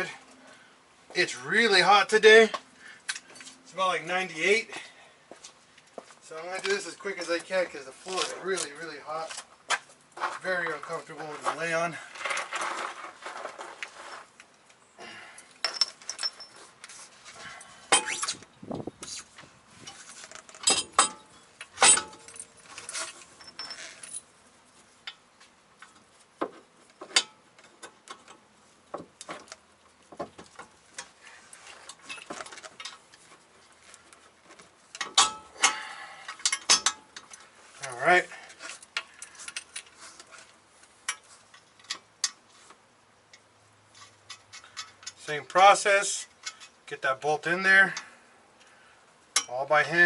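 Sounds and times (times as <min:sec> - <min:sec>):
metallic clinks and knocks: 0:15.6 - 0:16.7, 0:19.9 - 0:24.4.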